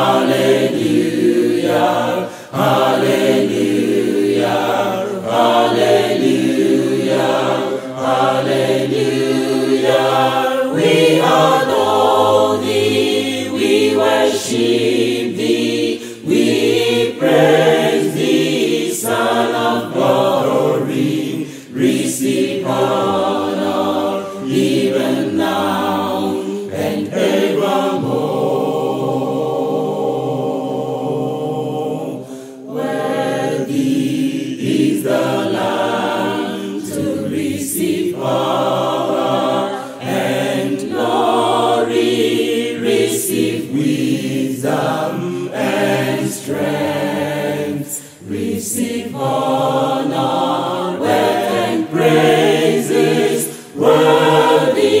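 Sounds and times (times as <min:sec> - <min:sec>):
choir singing a worship song: 0:00.0 - 0:55.0.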